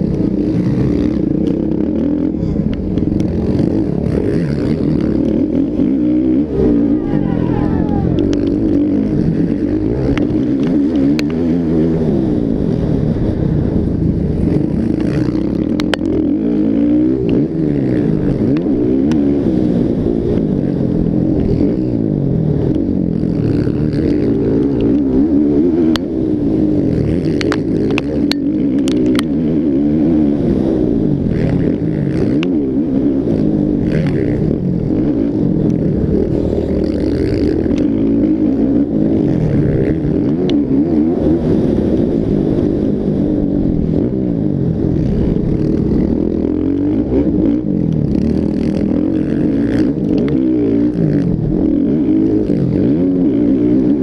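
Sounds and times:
motocross engines revving: 0.0 - 42.9, 43.7 - 54.0.

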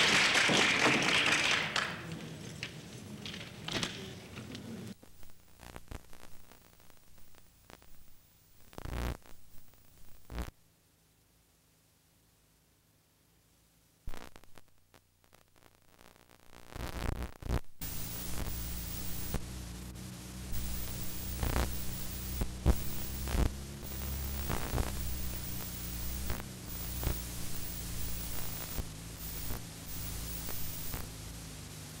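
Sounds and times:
recording hiss: 0.0 - 32.0
low hum: 4.9 - 32.0
clicks and pops: 20.5 - 31.1.

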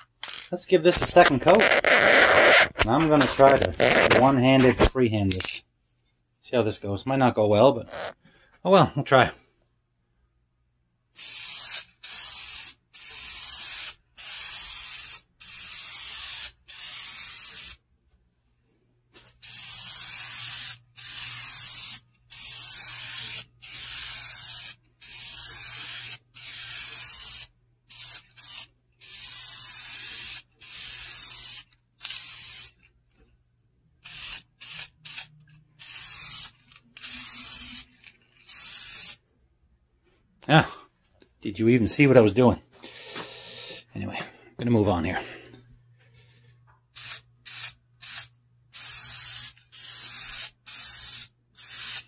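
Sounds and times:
aerosol can spraying: 1.6 - 4.2, 11.2 - 17.8, 19.4 - 32.7, 34.0 - 37.9, 38.5 - 39.2, 47.0 - 52.0.

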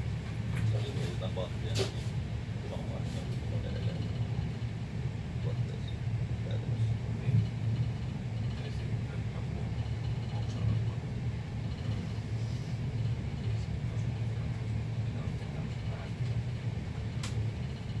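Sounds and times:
train rumbling: 0.0 - 18.0
sharp click: 17.2 - 17.4.

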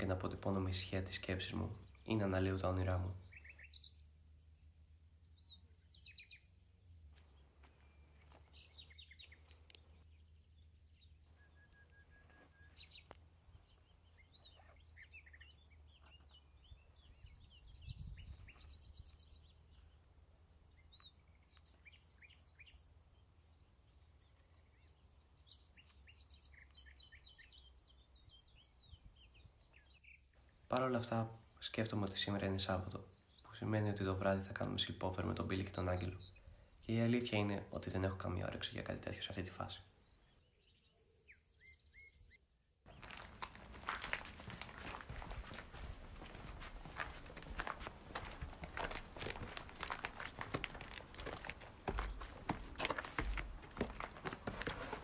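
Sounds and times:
bird chirps: 0.0 - 4.1, 5.3 - 6.6, 7.4 - 20.0, 20.7 - 23.0, 24.2 - 55.0.

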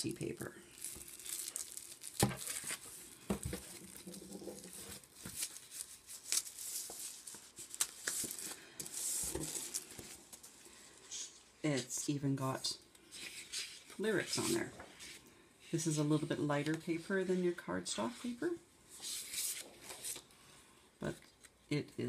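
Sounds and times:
cellophane wrapper crinkling and tearing: 0.7 - 10.6
thin paper rustling: 0.7 - 10.6.

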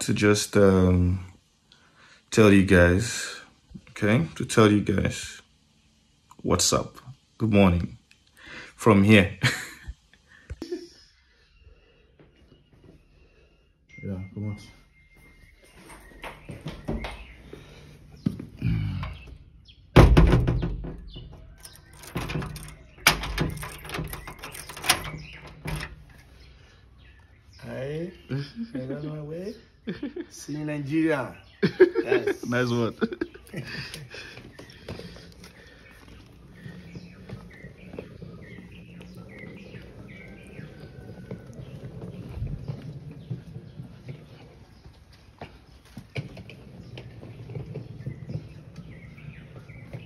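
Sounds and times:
birds chirping: 0.0 - 50.0
knocks: 20.0 - 21.5
door handle clicks and rattles: 20.0 - 26.2
door lock clunk: 20.0 - 26.2
suitcase wheels rolling on tiles: 21.0 - 26.7, 31.6 - 50.0
footsteps: 33.2 - 50.0.

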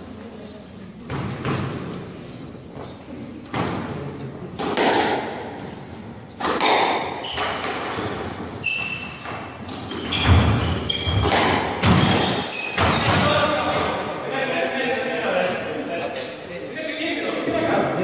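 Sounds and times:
squash ball hitting rackets and walls: 1.0 - 2.2, 2.8 - 14.1
shoes squeaking on wooden floor: 1.3 - 3.4, 7.1 - 14.0.

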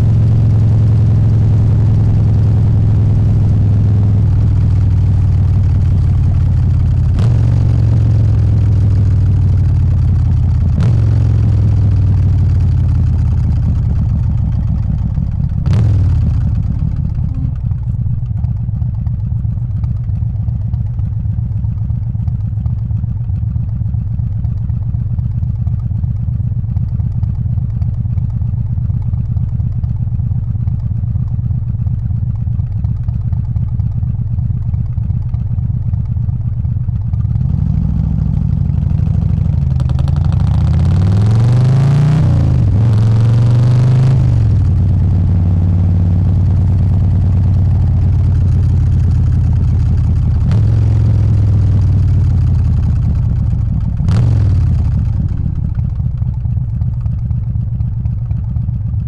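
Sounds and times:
motorcycle accelerating: 0.0 - 21.0, 37.0 - 58.4
motorcycle engine running: 0.0 - 59.0.

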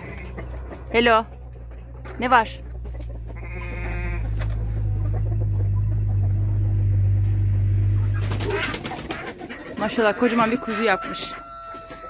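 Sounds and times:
low engine-like rumble: 0.0 - 10.4
faint steady hum: 2.6 - 8.7.

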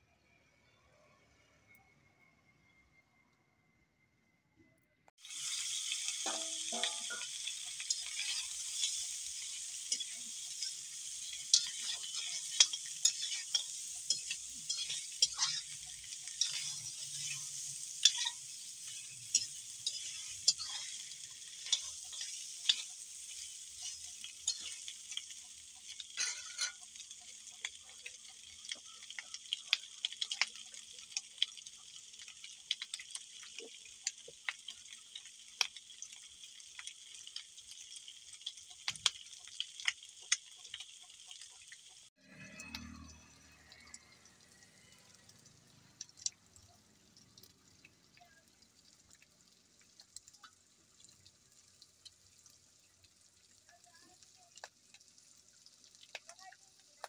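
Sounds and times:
pork sizzling in a wok: 5.2 - 57.0.

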